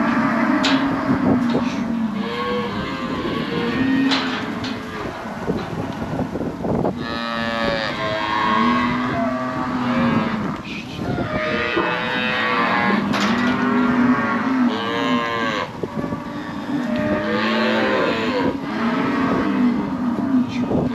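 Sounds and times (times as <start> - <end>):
cattle bawling: 7.0 - 20.9.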